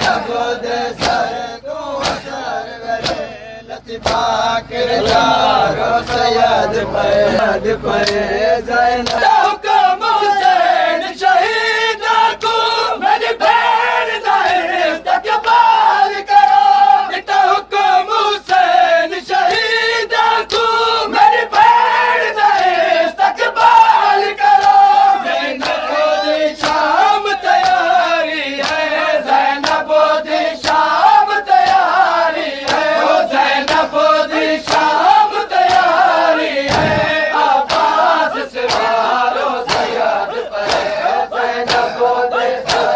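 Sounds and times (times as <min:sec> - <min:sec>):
men chanting in unison: 0:00.0 - 0:42.9
hand slaps on chest: 0:01.0 - 0:01.3, 0:02.0 - 0:02.3, 0:03.0 - 0:03.2, 0:26.6 - 0:26.8, 0:35.7 - 0:35.9, 0:36.7 - 0:37.9, 0:41.6 - 0:41.9, 0:42.7 - 0:42.9.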